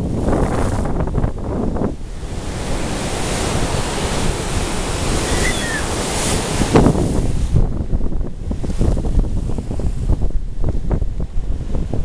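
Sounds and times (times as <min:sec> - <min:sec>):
waves breaking over rocks: 0:00.0 - 0:12.0
wind buffeting microphone: 0:00.0 - 0:12.0
faint gull call: 0:05.2 - 0:06.0.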